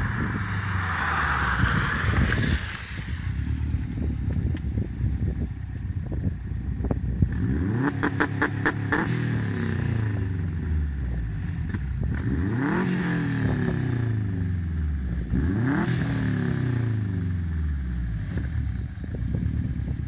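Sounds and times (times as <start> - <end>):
car engine revving: 7.3 - 17.6.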